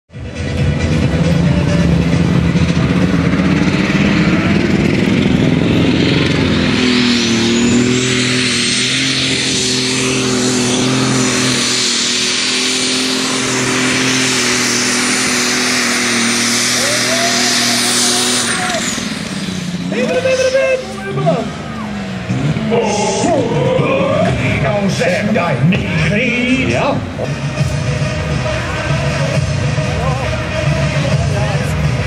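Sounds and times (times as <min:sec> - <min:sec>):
tractor engine at full throttle: 0:00.1 - 0:32.0.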